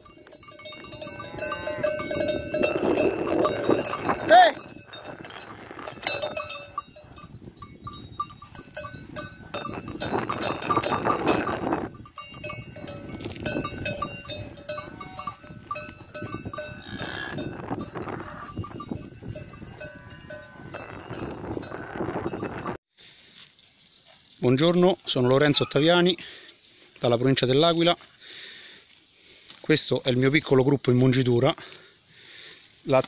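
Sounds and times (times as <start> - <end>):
cow bells clanking: 0.0 - 22.8, 25.1 - 26.2
cows lowing: 0.0 - 22.8.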